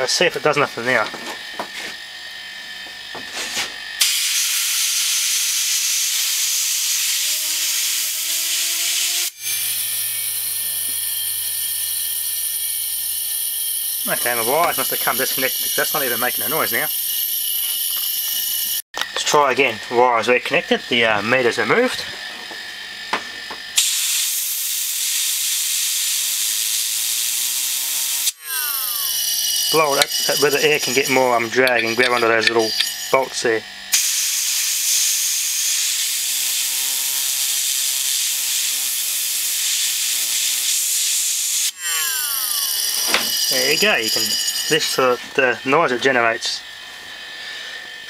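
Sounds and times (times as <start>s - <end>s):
spinning disc whine: 9.6s - 23.8s, 28.2s - 35.0s, 41.7s - 48.0s
disk spinning up whine: 28.4s - 30.2s, 41.8s - 44.8s
compressed air jet hissing: 39.3s - 43.0s.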